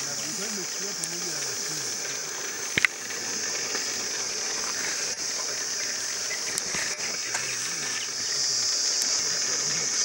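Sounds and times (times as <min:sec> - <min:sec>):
insects droning in grass: 0:00.0 - 0:10.0
faint clicks: 0:01.0 - 0:03.0, 0:03.7 - 0:08.2.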